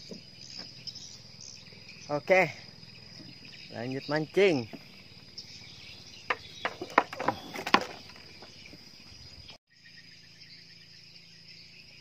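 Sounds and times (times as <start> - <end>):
insects chirring: 0.0 - 12.0
sharp knocks: 6.3 - 8.2.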